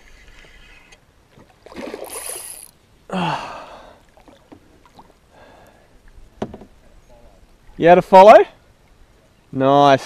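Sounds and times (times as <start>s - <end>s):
man gasping: 3.1s - 4.1s
man sighing: 3.1s - 4.1s.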